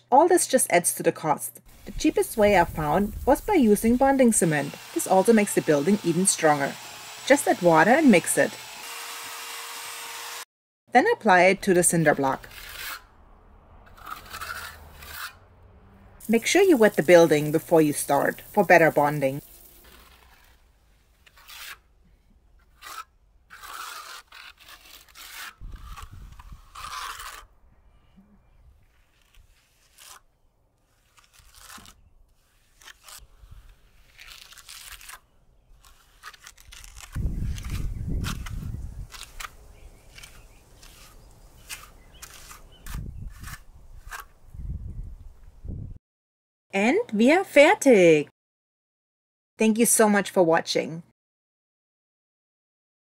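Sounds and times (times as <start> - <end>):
cement scraping on block: 11.9 - 13.1, 13.8 - 15.5, 16.2 - 27.5, 28.8 - 44.3.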